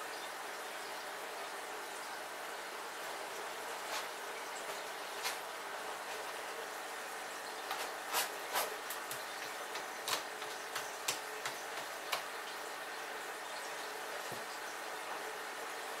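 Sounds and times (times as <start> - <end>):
cat scratching in litter: 3.8 - 6.4, 7.6 - 12.1.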